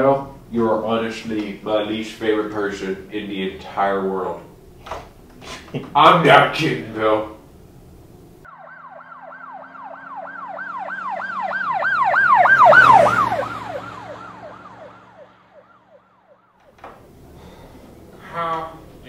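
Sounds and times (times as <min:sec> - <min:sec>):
siren yelping: 0:08.5 - 0:16.7.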